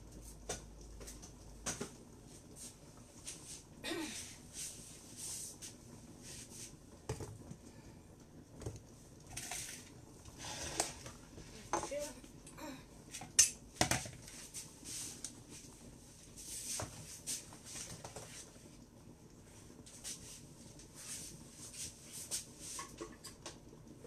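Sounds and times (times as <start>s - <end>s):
utensils rustling and scraping: 9.3s - 12.2s.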